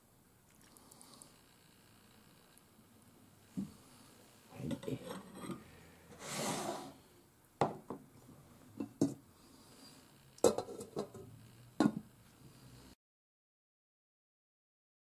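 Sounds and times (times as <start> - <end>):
tableware knocking and clinking: 8.8 - 9.2, 10.4 - 12.1.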